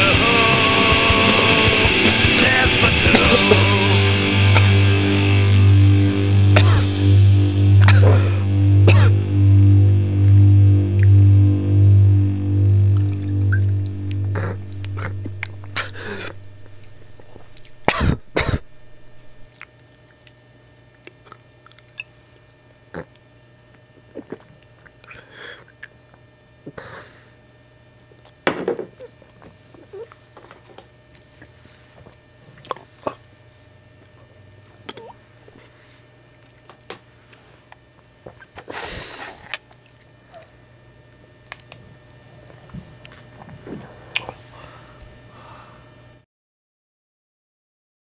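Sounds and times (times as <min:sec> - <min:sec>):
music: 0:00.0 - 0:17.9
faint low hum: 0:03.2 - 0:28.2
mouth clicks: 0:12.9 - 0:19.7, 0:43.7 - 0:44.4.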